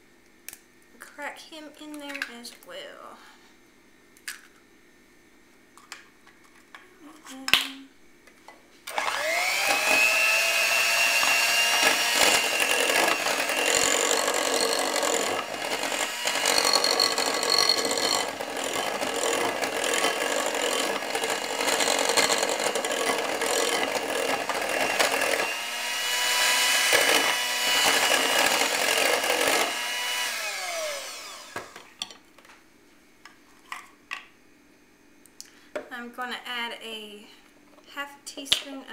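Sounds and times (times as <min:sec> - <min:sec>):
electric hand mixer whining: 0:08.9 - 0:31.9.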